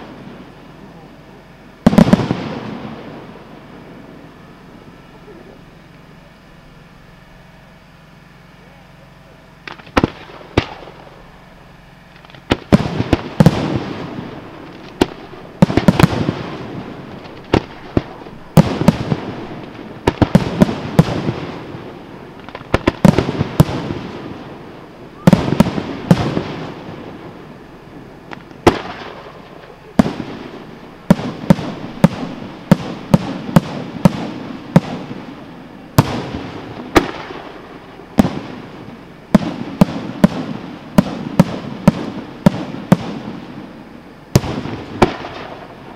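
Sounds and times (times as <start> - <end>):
fireworks bursting with echo: 0.0 - 45.9.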